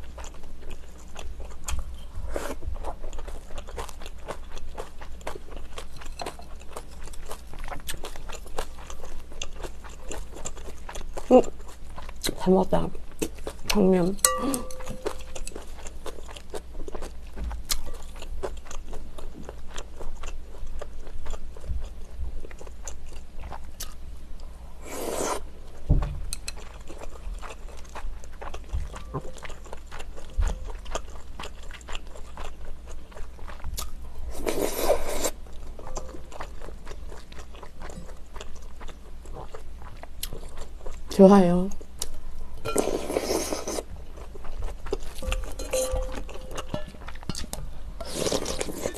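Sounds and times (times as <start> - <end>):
wet chewing: 0.0 - 12.5, 13.1 - 24.0, 26.4 - 41.3, 41.9 - 48.9
slurping: 24.8 - 25.4, 34.3 - 35.4, 42.7 - 43.9, 48.0 - 48.9.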